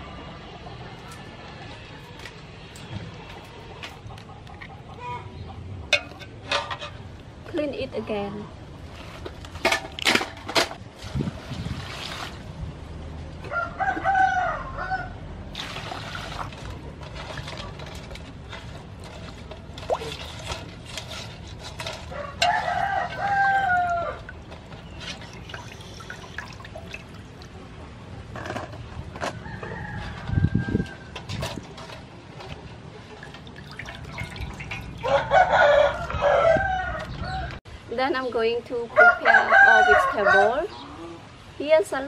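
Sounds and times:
water sloshing and dripping: 8.8 - 12.6, 15.5 - 27.8, 31.2 - 35.3
rooster crowing: 13.5 - 15.2, 22.1 - 24.2, 35.0 - 37.6, 39.0 - 40.6.

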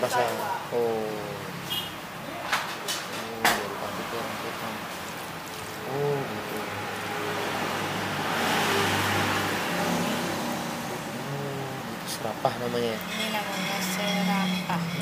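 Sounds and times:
vehicle passing: 3.5 - 15.0.

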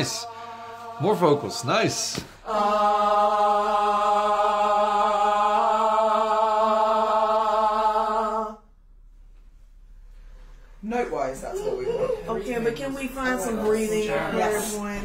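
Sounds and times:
singers holding a long note: 0.0 - 8.7.

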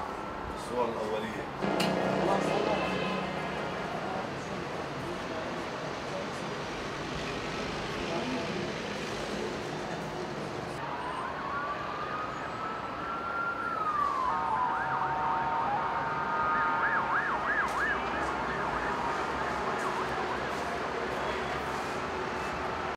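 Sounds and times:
steady background noise: 0.0 - 22.9
siren wailing: 1.6 - 4.4, 10.8 - 20.9
overlapping sirens yelping: 10.8 - 22.4.

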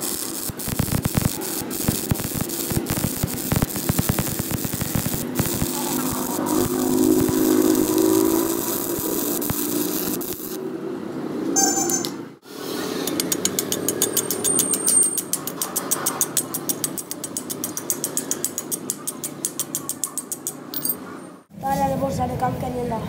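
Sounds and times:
welding arc crackling: 0.0 - 10.7.

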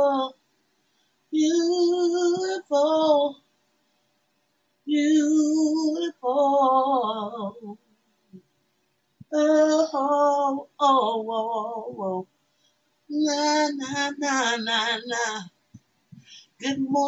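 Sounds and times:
woman singing unaccompanied: 0.0 - 0.4, 1.4 - 3.4, 4.9 - 7.8, 9.3 - 12.3, 13.1 - 15.6, 16.6 - 17.0.

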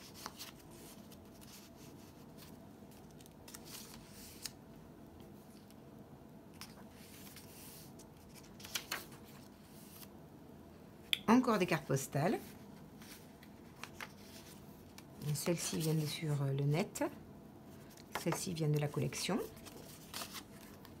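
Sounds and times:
paper rustling and crinkling: 0.0 - 4.6, 6.6 - 10.1, 12.4 - 16.2, 17.8 - 21.0.

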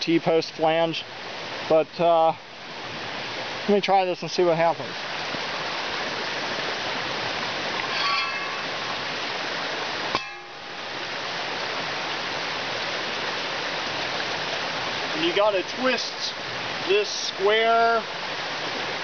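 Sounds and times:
creek rushing over rocks: 0.0 - 19.0
high squeak: 7.8 - 9.0.

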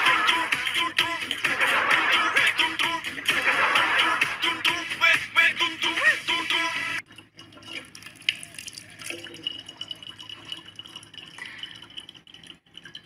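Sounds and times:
music: 0.0 - 7.0
tap water running into jug: 7.0 - 13.0
water drips: 7.0 - 13.0.

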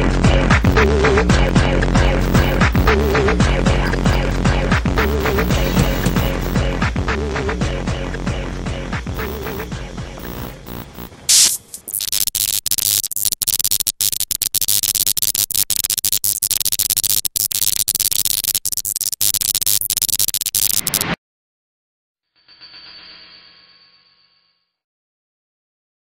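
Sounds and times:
electronic music: 0.6 - 6.8, 9.0 - 21.1
static hiss and crackle: 0.7 - 1.0, 2.2 - 4.3, 5.0 - 6.6, 9.2 - 21.2
sharp burst of noise: 2.0 - 4.3, 9.2 - 21.2.

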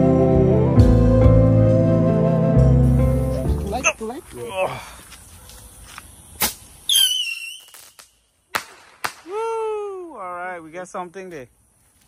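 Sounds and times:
firework cracks: 6.4 - 9.5
firework whistle: 6.9 - 9.4.

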